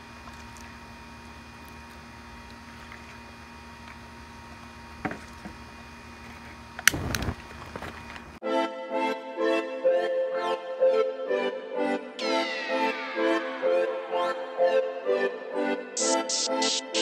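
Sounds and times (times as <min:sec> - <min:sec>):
fire igniting with crack and whoosh: 0:06.8 - 0:07.9
music: 0:08.4 - 0:17.0.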